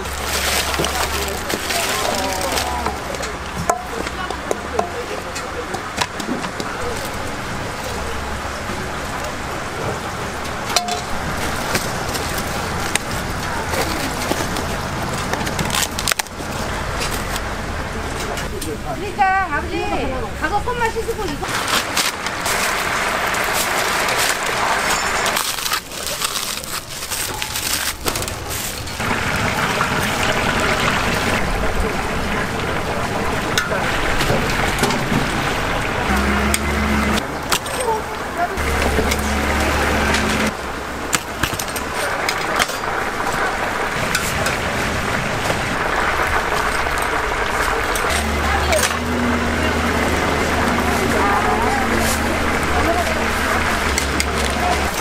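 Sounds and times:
deep-frying sizzle and bubbling: 0.0 - 19.3, 20.2 - 55.0
paper box crinkling and clicking: 11.7 - 16.4, 21.4 - 29.0.

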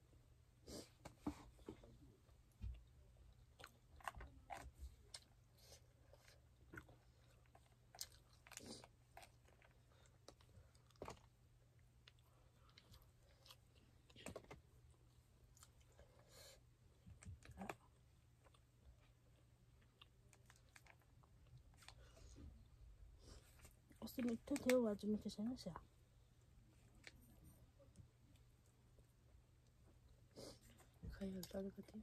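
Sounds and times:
chewing food: 2.5 - 16.3, 16.9 - 24.8.

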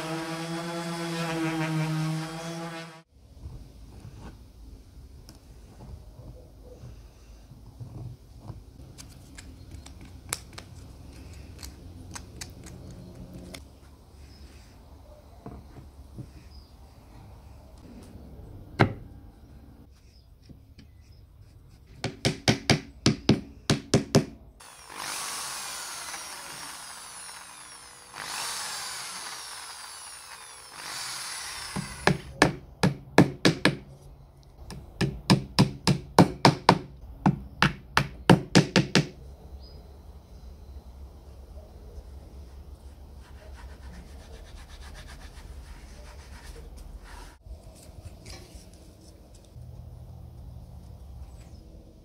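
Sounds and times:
electric drill boring wood: 0.0 - 3.0, 24.6 - 32.3.

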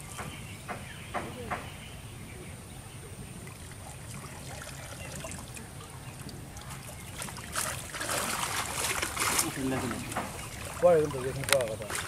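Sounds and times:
water trickling and splashing: 3.2 - 12.0.

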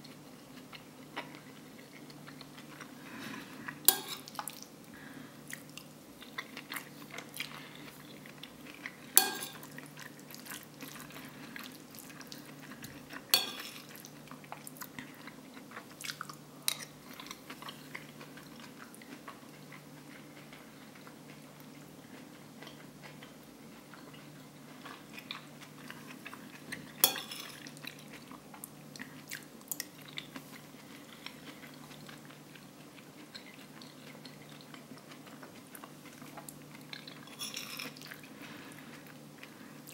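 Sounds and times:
soft chewing: 0.0 - 39.9
metal spoon clinking on plate: 3.9 - 4.3, 9.2 - 9.7, 13.3 - 13.9, 27.0 - 27.6.

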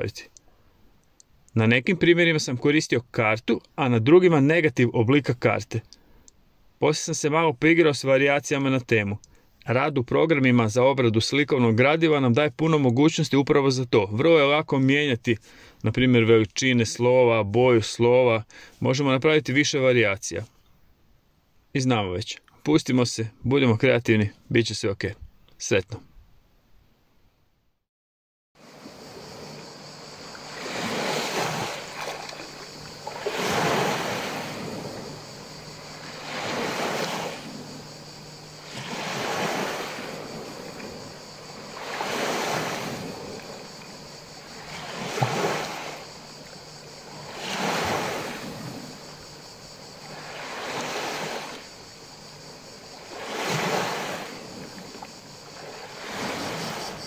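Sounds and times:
sea waves washing over sand: 28.6 - 57.0.

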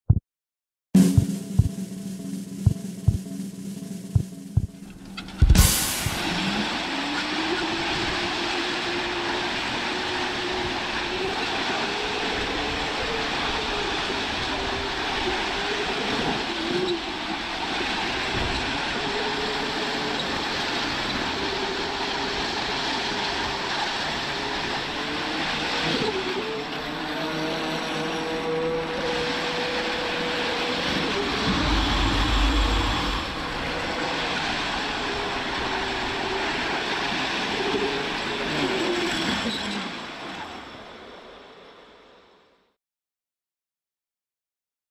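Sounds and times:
wavering hum: 30.1 - 36.6.

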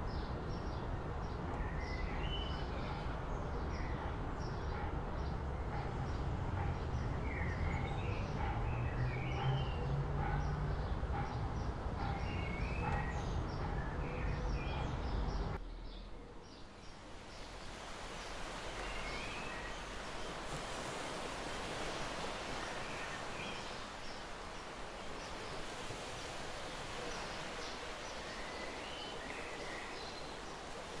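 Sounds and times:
low rumble of city noise: 0.0 - 20.8.

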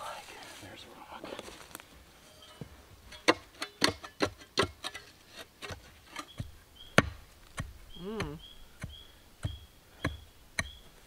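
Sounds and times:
spade striking stony soil: 3.1 - 10.8.

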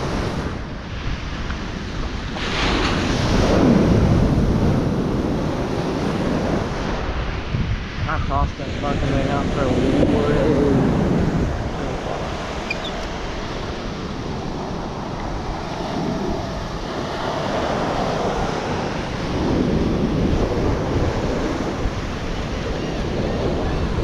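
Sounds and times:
ocean surf on beach: 0.0 - 24.0
wind rumbling on microphone: 0.0 - 24.0.

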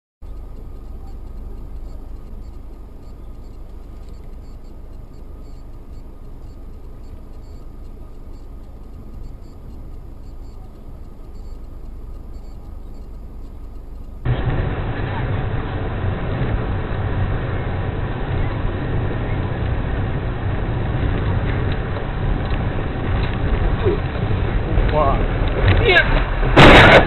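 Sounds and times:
faint ticking: 0.2 - 14.3
car engine and tyre noise: 0.2 - 27.0.

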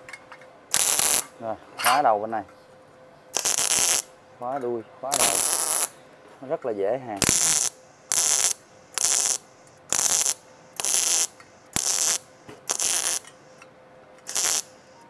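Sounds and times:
welder arc crackling: 0.7 - 1.4, 3.4 - 4.1, 5.1 - 6.0, 7.2 - 13.6, 14.2 - 15.0.

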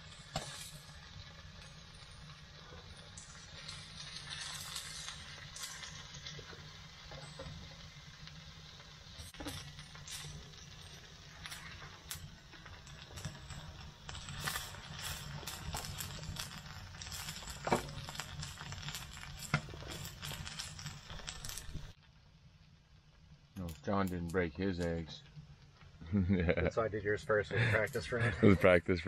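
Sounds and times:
food sizzling on a griddle: 0.0 - 22.0, 26.1 - 28.8
spatula scraping griddle: 2.2 - 8.2, 9.2 - 21.9.

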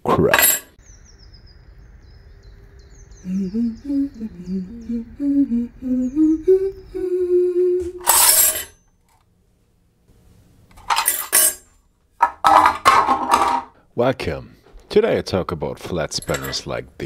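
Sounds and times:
metal spanners clattering on table: 0.3 - 0.7, 8.0 - 8.7, 10.7 - 13.7, 16.2 - 16.6
person humming: 3.1 - 8.3.

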